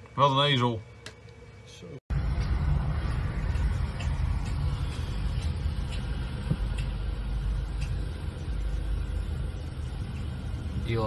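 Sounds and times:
truck engine rumbling: 0:02.1 - 0:11.0
faint light ticks: 0:06.7 - 0:07.0, 0:07.8 - 0:08.0.

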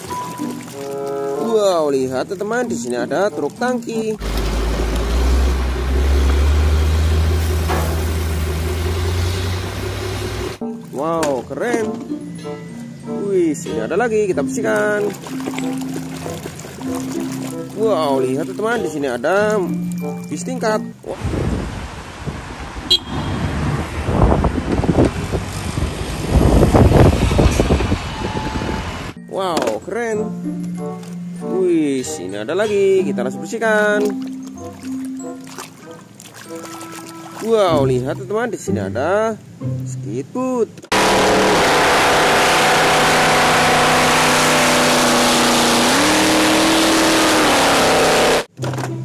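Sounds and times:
boat engine roaring: 0:00.0 - 0:10.6, 0:14.2 - 0:20.0, 0:20.7 - 0:29.2, 0:40.9 - 0:48.5
bus engine driving past: 0:04.2 - 0:10.6, 0:21.6 - 0:29.2
traffic noise: 0:04.2 - 0:10.6, 0:21.0 - 0:29.2.

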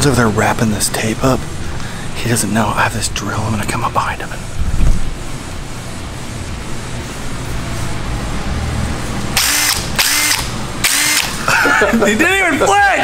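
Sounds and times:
cordless drill revving: 0:09.4 - 0:11.4.

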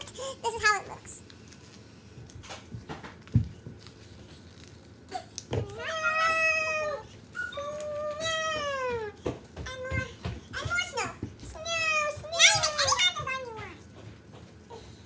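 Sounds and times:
paper being folded: 0:00.0 - 0:09.1.

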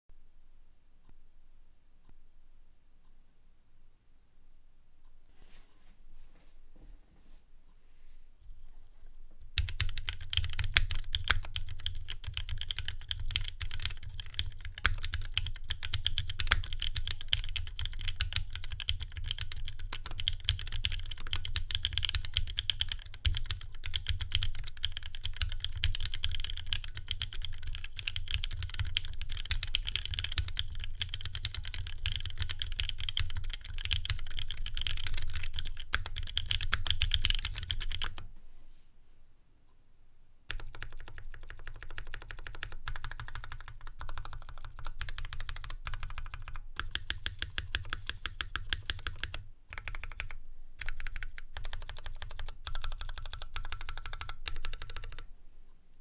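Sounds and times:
fast mechanical keyboard typing: 0:09.6 - 0:38.2, 0:40.5 - 0:55.3.

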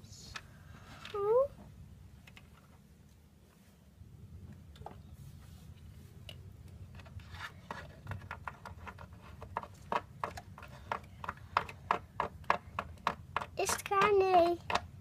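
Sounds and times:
plastic figures tapping on wood: 0:06.7 - 0:15.0.

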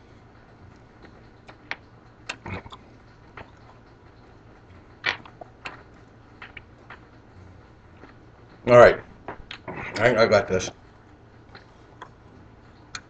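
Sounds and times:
wet chewing clicks and smacks: 0:00.6 - 0:08.6.

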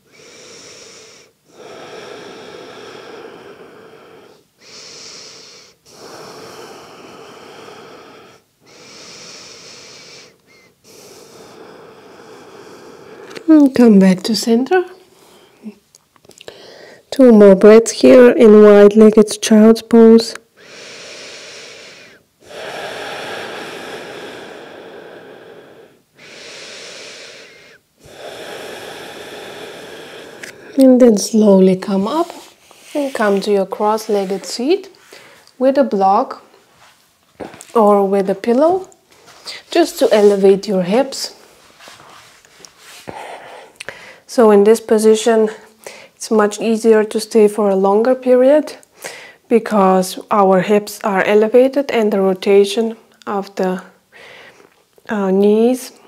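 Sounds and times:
person breathing deeply: 0:00.0 - 0:13.6, 0:16.4 - 0:17.1, 0:20.4 - 0:35.6, 0:37.4 - 0:44.3, 0:45.5 - 0:46.2, 0:49.0 - 0:49.5, 0:54.1 - 0:54.8.

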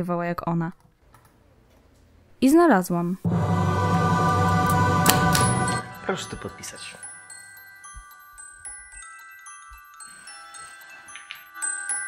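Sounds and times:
glockenspiel-like bell notes: 0:03.6 - 0:12.0.

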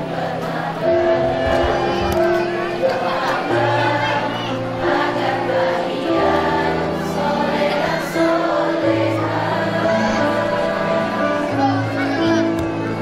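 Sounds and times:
group singing in unison: 0:00.0 - 0:13.0
instrumental backing music: 0:00.0 - 0:13.0.

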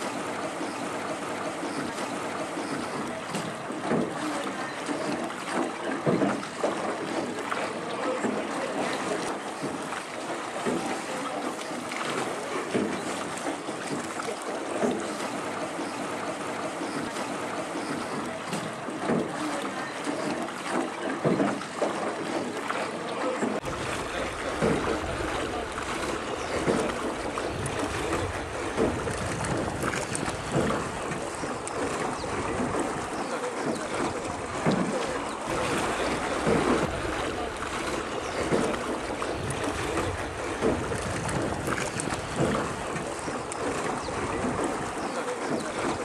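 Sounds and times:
water lapping around rowboat: 0:00.0 - 0:46.0
wind rumble on microphone: 0:23.6 - 0:33.2, 0:35.5 - 0:43.2.

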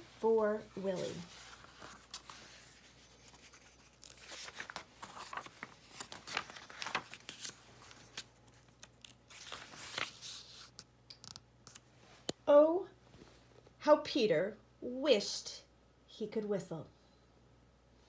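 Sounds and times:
book pages turning: 0:00.8 - 0:12.3.

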